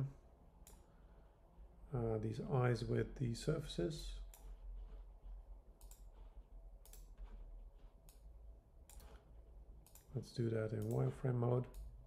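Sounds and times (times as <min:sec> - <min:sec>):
faint low hum: 0:00.0 - 0:12.0
computer mouse clicks: 0:00.6 - 0:00.9, 0:04.2 - 0:05.0, 0:05.8 - 0:12.0.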